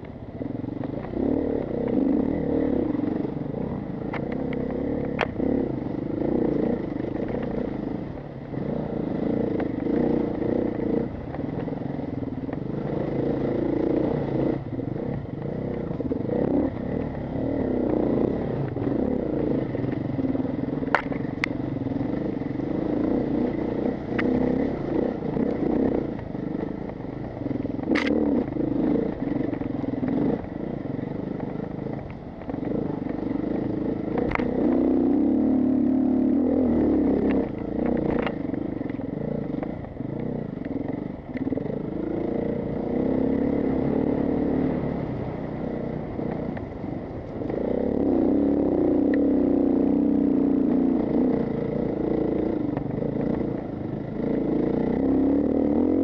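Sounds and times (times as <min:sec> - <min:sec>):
sharp clacks: 0:27.9 - 0:28.2
dirt bike engine revving: 0:47.4 - 0:56.0.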